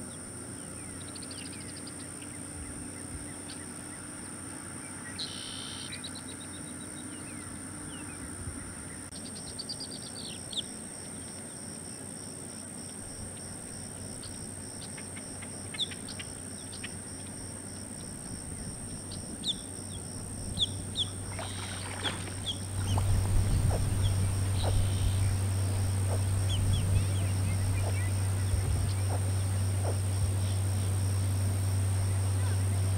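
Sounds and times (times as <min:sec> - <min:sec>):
steady high whine: 0:12.9 - 0:32.9
low rumble: 0:17.4 - 0:32.9
alligator hatchlings chirping: 0:18.9 - 0:32.9.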